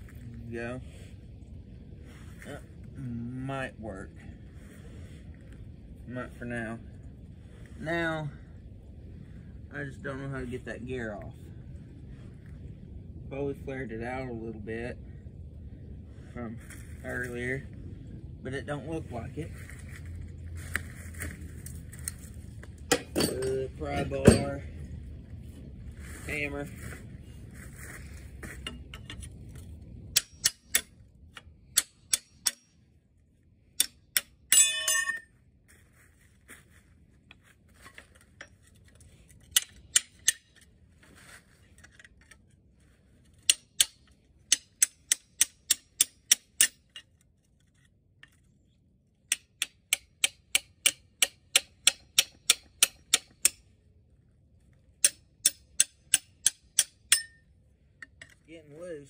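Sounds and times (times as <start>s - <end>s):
ringing metal clang: 22.9s - 24.6s, 34.5s - 35.3s, 55.4s - 57.5s
hammer striking metal bar: 30.1s - 30.9s, 31.7s - 32.7s, 33.8s - 35.2s, 49.3s - 53.6s, 55.0s - 57.4s.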